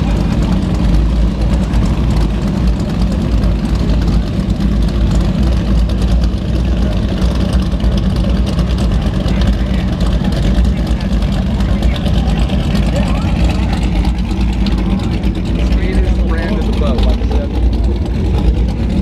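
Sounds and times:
powerboat engines idling: 0:00.0 - 0:19.0.

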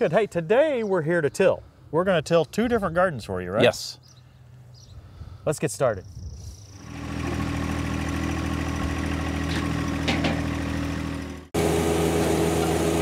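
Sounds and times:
tractor engine idling: 0:06.8 - 0:13.0.

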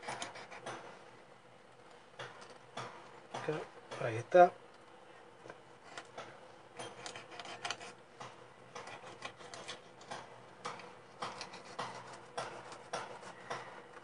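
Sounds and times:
knife scraping along fish bone: 0:00.0 - 0:00.8, 0:06.8 - 0:08.0, 0:11.2 - 0:13.5.

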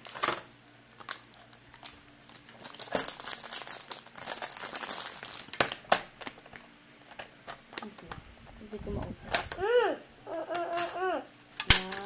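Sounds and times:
plastic packaging crinkling: 0:00.0 - 0:08.1.

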